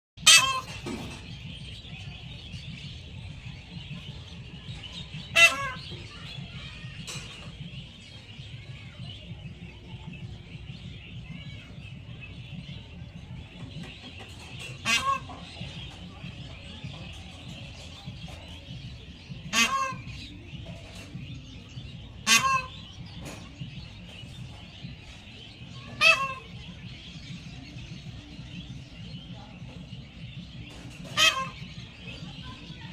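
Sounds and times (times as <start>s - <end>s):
peahen calling: 0.2s - 1.1s, 5.2s - 7.5s, 14.6s - 16.2s, 18.3s - 21.1s, 21.9s - 23.6s, 25.7s - 26.8s, 30.6s - 32.7s.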